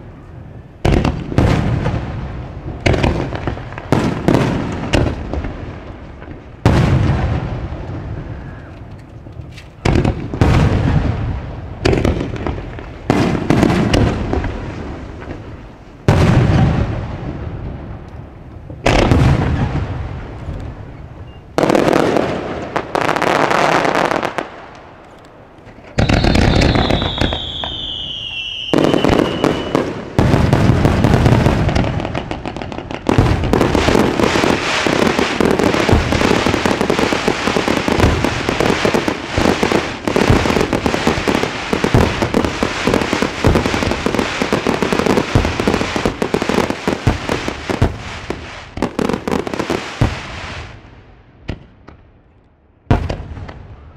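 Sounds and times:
firework crackle: 0.0 - 25.0, 25.6 - 50.9
firework bang: 6.6 - 8.0, 16.1 - 17.6, 18.8 - 20.3, 25.8 - 46.1
falling whistle: 26.0 - 29.8.

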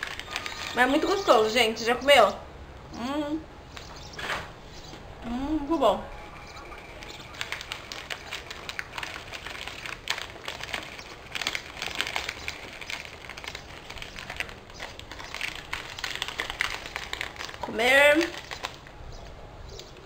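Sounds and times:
plastic wrapper crinkling: 0.0 - 1.5, 6.5 - 19.0.

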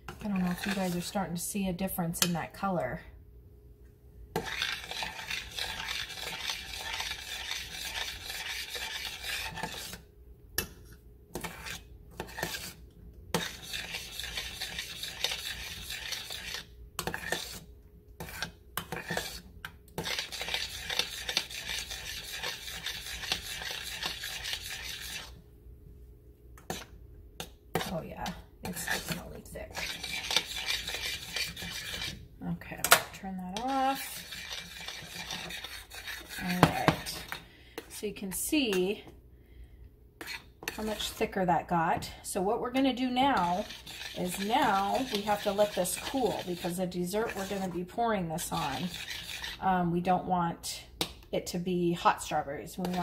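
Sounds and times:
metal spoon scraping saucepan: 0.1 - 1.4, 4.4 - 10.0, 11.4 - 17.6, 18.2 - 25.4, 27.8 - 39.0, 40.2 - 41.5, 42.3 - 49.7, 52.2 - 53.0.

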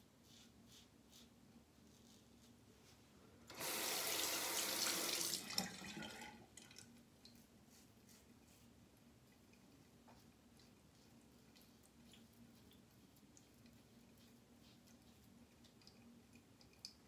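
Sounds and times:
sink tap running: 3.5 - 5.8.

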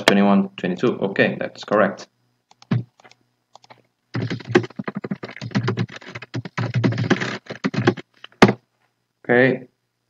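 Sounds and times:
fast typing on keyboard: 2.5 - 8.1.

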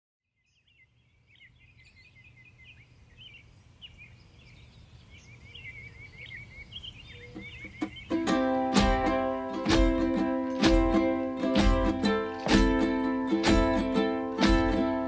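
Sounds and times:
small birds chirping: 0.3 - 8.5
plucked-string music: 7.4 - 15.0.

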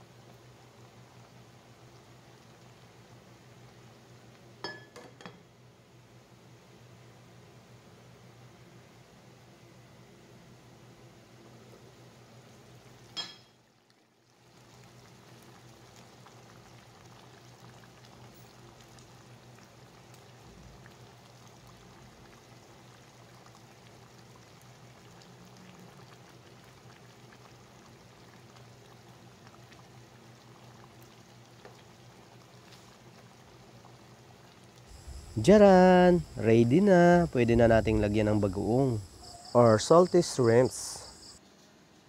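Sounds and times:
pot of stew simmering: 0.0 - 4.9, 11.2 - 39.5
low steady hum: 34.4 - 41.4.

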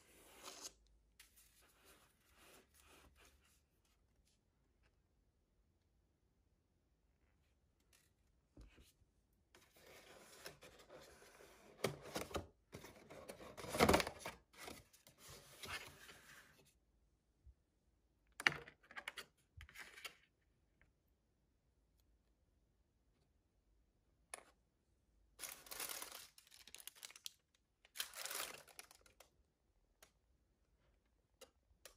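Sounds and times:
cardboard packaging rustling: 25.4 - 27.3.

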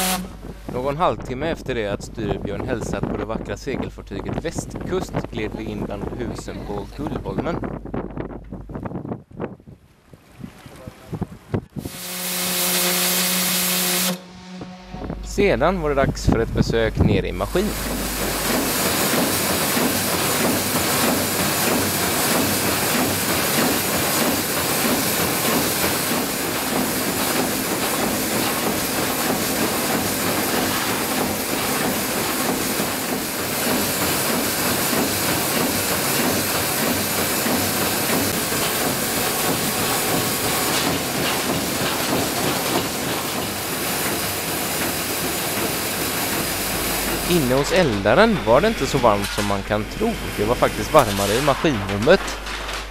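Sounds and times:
steam engine running: 0.0 - 0.7, 11.9 - 52.9
steam hissing: 17.4 - 51.6.

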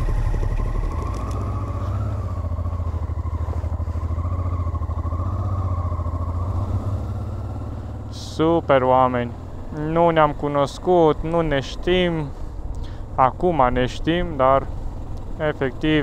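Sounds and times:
motorcycle engine at low revs: 0.0 - 16.0.

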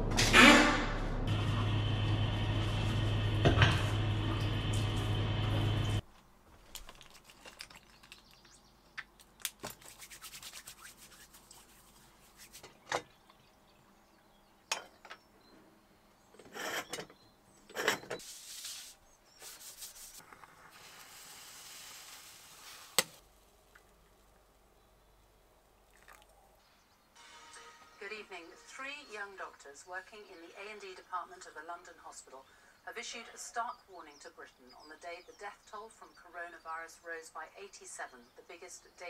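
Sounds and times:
moka pot brewing hiss: 20.2 - 23.2.

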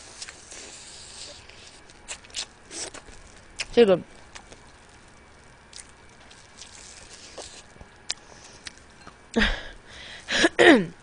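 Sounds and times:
person eating crab: 5.6 - 9.3.

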